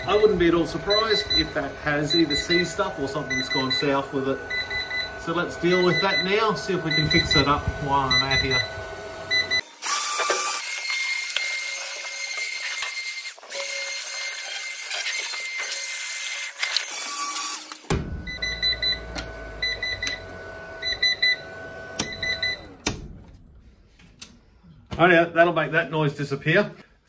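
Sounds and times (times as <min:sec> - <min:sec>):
low hum: 0:00.0 - 0:09.6
alarm beeping short high beeps: 0:00.0 - 0:09.7.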